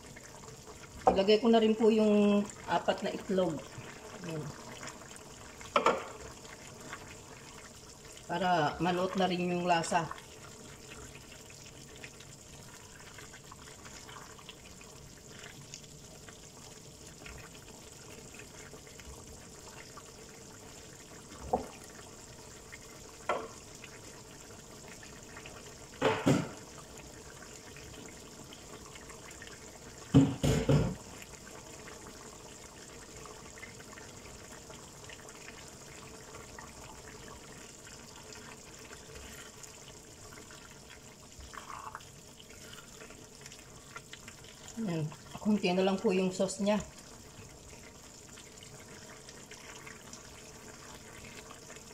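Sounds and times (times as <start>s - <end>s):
sauce simmering with bubbling hiss: 0.0s - 51.9s.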